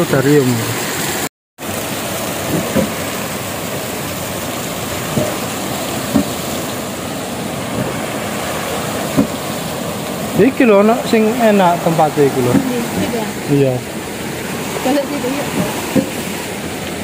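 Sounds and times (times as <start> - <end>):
stream rushing over rocks: 0.0 - 17.0.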